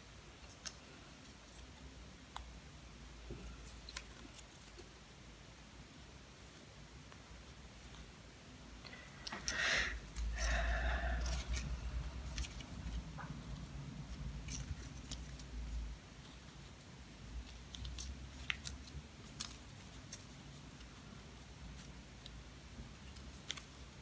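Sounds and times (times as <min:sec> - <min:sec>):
paper strips rustling: 0:03.4 - 0:05.4, 0:08.9 - 0:24.0.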